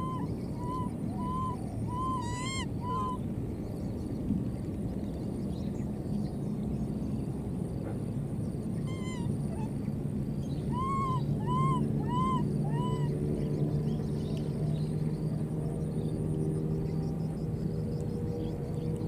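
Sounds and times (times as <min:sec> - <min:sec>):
baby monkey coo calls: 0:00.0 - 0:03.2, 0:08.9 - 0:09.8, 0:10.7 - 0:13.1
steady low hum: 0:00.0 - 0:19.0.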